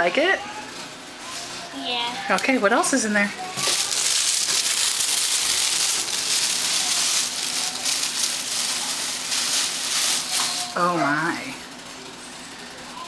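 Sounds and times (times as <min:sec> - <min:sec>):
tissue paper rustling and crinkling: 0:03.6 - 0:11.0.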